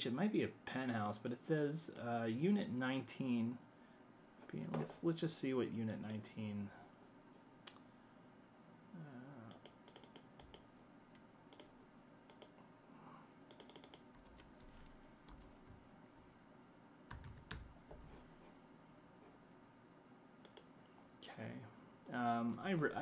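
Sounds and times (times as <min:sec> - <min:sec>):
typing on computer keyboard: 0:09.5 - 0:10.6, 0:13.5 - 0:15.8, 0:17.1 - 0:17.7.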